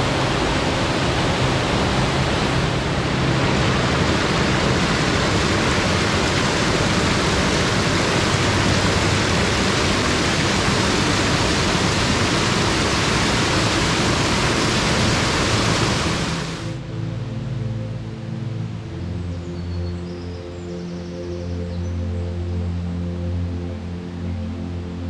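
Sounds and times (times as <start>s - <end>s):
water rushing down a stream cascade: 0.0s - 16.8s
music: 0.0s - 25.0s.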